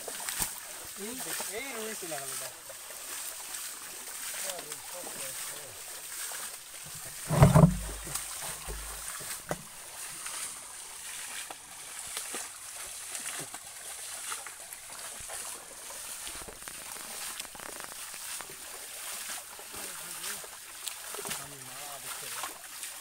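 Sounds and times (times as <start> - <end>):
water sloshing and splashing: 0.0 - 23.0
water splashed by hand: 0.0 - 23.0
loud thump: 7.2 - 9.0.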